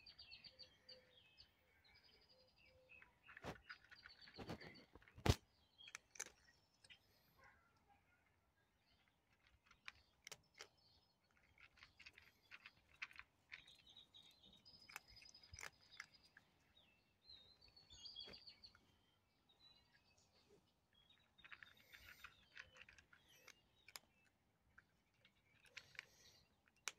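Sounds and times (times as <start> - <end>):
birds chirping: 0.0 - 26.9
cat crunching dry kibble: 3.1 - 7.2, 8.7 - 19.0, 20.8 - 26.9.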